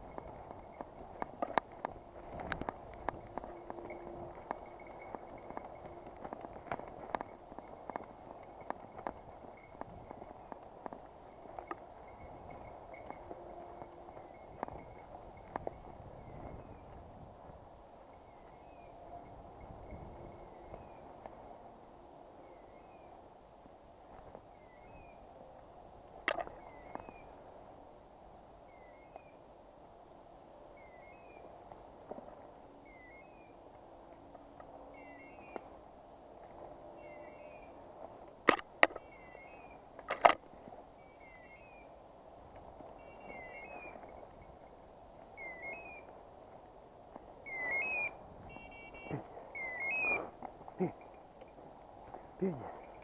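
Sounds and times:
twigs and leaves crackling underfoot: 0.0 - 17.0, 26.2 - 27.6, 31.4 - 53.0
beeper collar rising chirp: 45.4 - 46.1, 47.4 - 51.0.

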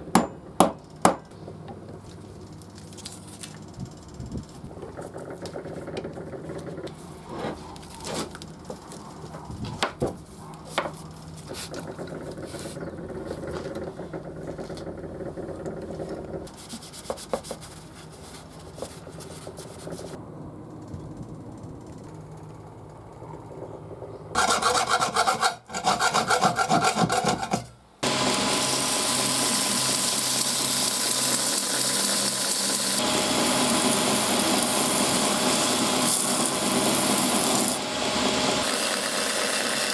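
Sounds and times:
hand filing on workpiece: 24.4 - 27.6
power tool whirring: 28.0 - 39.9.

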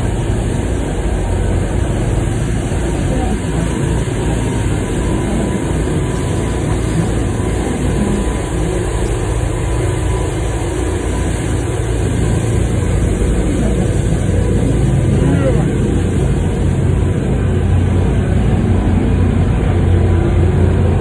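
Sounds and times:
boat engine drone: 0.0 - 21.0
rushing boat wake: 0.0 - 21.0.

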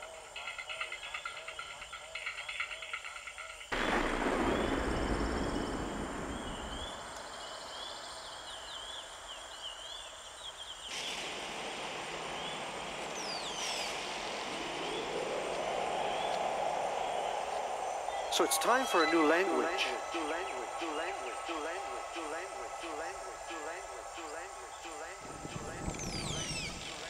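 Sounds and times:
birds chirping: 0.0 - 27.0
water rushing: 11.0 - 27.0.

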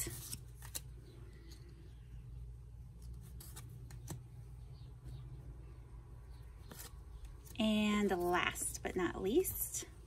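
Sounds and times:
playing cards clicking and rustling: 0.0 - 1.8, 2.9 - 4.4.

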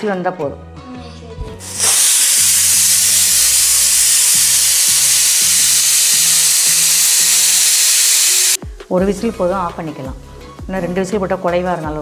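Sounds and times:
pressure cooker whistling: 1.6 - 8.6.

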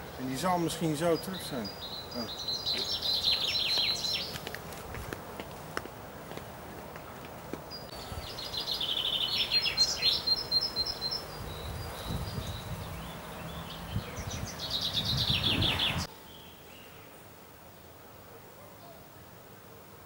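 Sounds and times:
songbird trilling: 0.0 - 4.4, 7.7 - 17.1.

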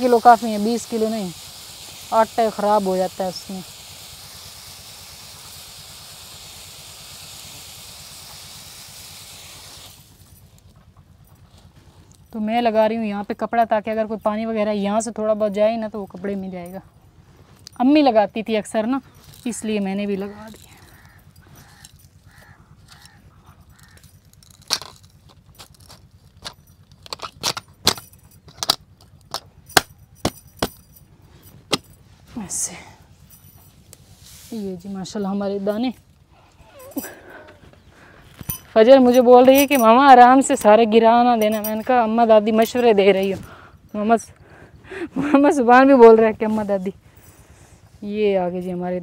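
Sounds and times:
grain pouring: 0.0 - 10.4.

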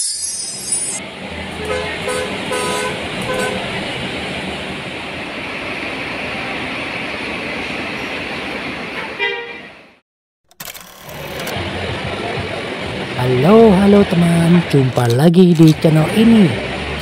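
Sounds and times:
traffic noise: 0.0 - 17.0
short vehicle horn toots: 1.7 - 3.6, 9.0 - 9.7
low idling engine hum: 11.1 - 17.0.

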